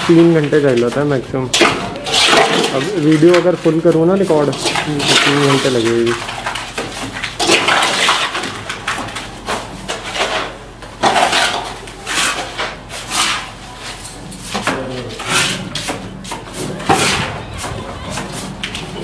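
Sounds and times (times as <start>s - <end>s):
trowel scraping mortar: 9.9s - 18.6s.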